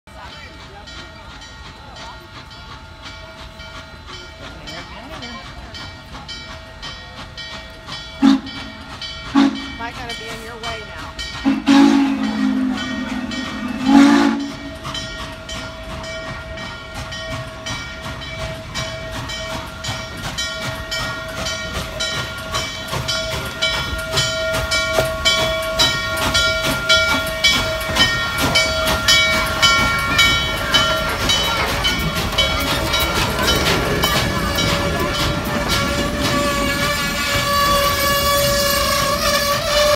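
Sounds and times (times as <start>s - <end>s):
steam locomotive exhaust beats: 0.1s - 39.9s
steam whistle blasts: 8.2s - 8.7s, 9.3s - 9.7s, 11.4s - 14.9s, 34.1s - 39.9s.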